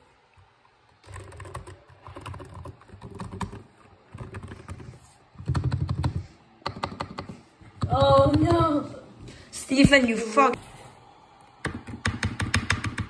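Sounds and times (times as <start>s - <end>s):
keyboard typing: 0.9s - 8.8s, 11.6s - 13.0s.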